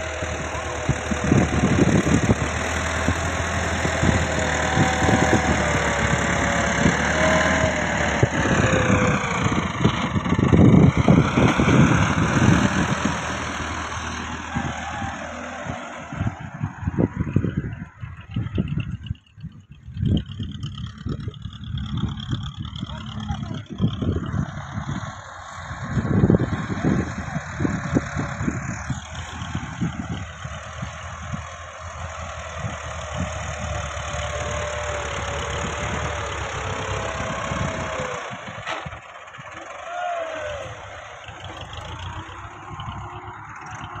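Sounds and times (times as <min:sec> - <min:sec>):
diesel tractor engine under load: 0:00.0 - 0:44.0.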